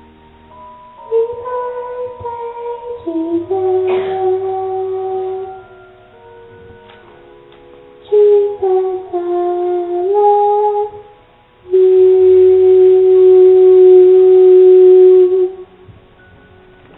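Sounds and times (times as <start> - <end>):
girl singing into microphone: 1.0 - 5.9, 8.0 - 15.7.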